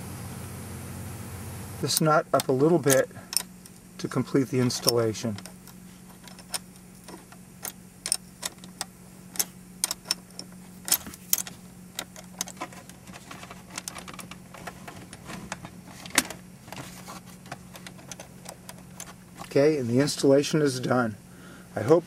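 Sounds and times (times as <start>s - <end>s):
wrench clicking on metal nut: 1.9s - 3.5s, 4.7s - 12.7s.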